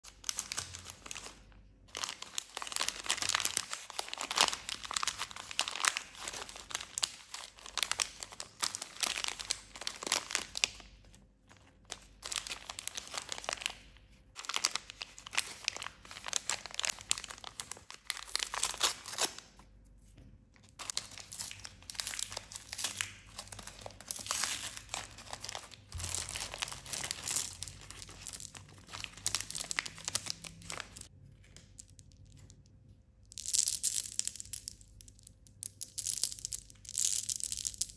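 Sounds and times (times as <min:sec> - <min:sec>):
candy bag tearing open: 0:00.0 - 0:10.9, 0:11.9 - 0:13.8, 0:14.4 - 0:19.5, 0:20.8 - 0:31.1
plastic wrapper crinkling: 0:00.0 - 0:19.6, 0:20.8 - 0:32.6.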